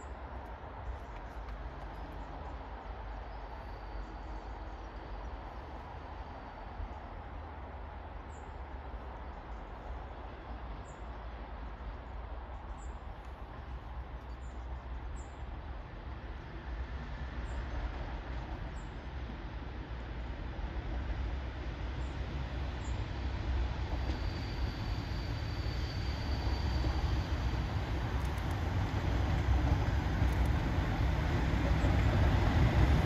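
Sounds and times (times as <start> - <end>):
diesel locomotive rumbling: 8.6 - 33.0.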